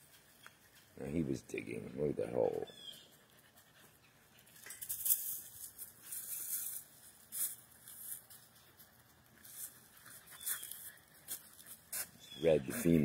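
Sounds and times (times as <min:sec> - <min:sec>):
footsteps crunching dry leaves: 0:04.9 - 0:12.9.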